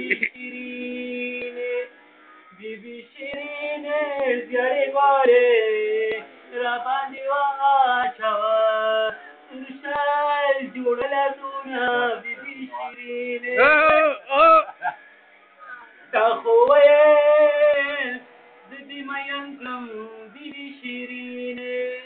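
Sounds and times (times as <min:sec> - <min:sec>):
man singing: 0:00.0 - 0:01.9, 0:02.5 - 0:14.7, 0:16.1 - 0:22.0.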